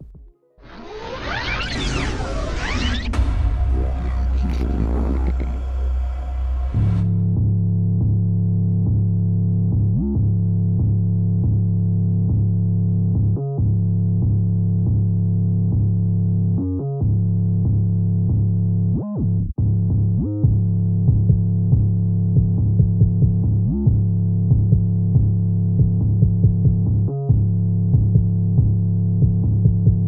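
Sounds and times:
synthesizer bass music: 0:00.0 - 0:30.0.

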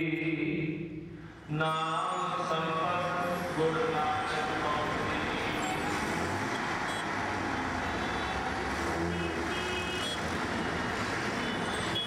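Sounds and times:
road traffic noise: 0:00.0 - 0:12.0
bus engine passing: 0:02.5 - 0:12.0.

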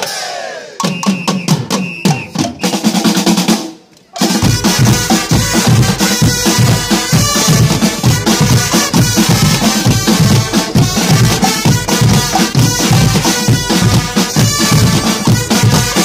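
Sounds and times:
brass band playing loudly: 0:00.0 - 0:16.0
bass drums and drum kit: 0:04.2 - 0:16.0
brass section of horns: 0:04.2 - 0:16.0.

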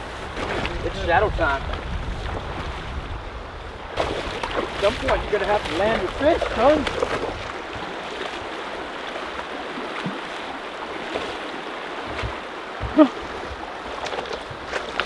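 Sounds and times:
river water running over rocks: 0:03.8 - 0:15.0.

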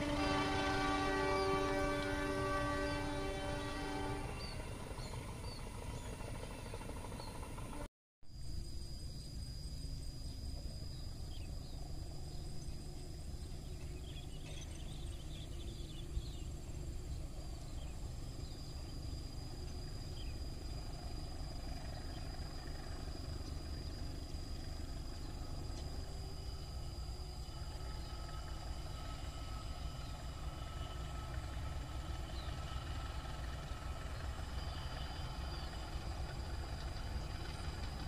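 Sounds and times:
thin high whine: 0:07.7 - 0:38.0.

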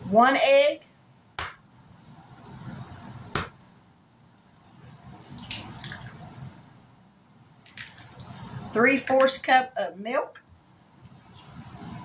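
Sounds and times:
egg cracking: 0:05.2 - 0:06.2.

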